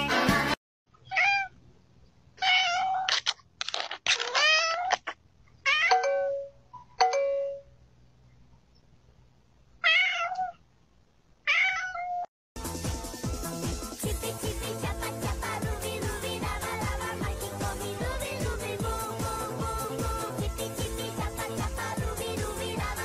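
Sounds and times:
cat meowing: 1.0s - 1.5s, 2.4s - 3.3s, 4.2s - 6.0s, 9.8s - 10.6s, 11.5s - 12.3s.

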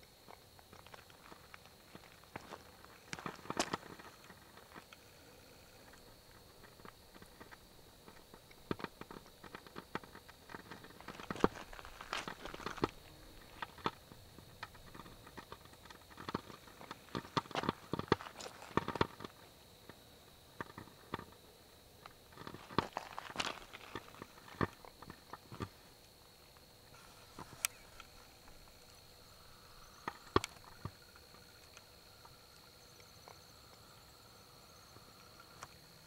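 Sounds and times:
faint high whine: 0.0s - 36.0s
footsteps on gravel: 0.6s - 4.9s, 10.6s - 14.0s, 14.8s - 19.4s, 22.3s - 25.7s.

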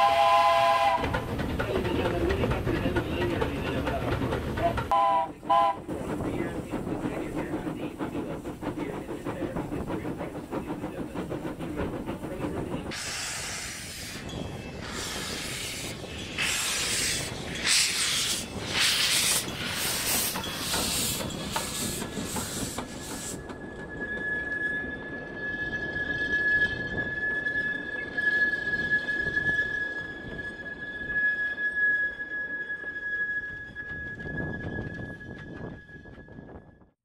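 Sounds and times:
train wheels clicking: 0.0s - 23.9s
steam hissing in puffs: 10.4s - 23.4s
wheels squealing on curve: 12.1s - 36.4s.

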